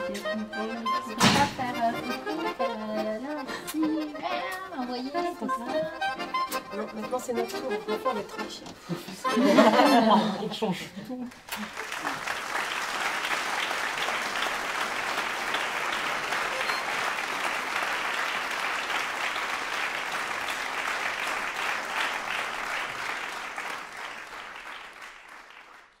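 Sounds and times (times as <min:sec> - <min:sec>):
audience applauding: 0:11.3 - 0:26.0.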